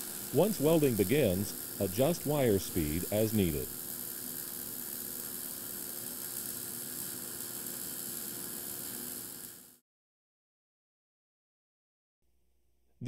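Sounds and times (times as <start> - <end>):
welding arc sizzling: 0.0 - 9.8.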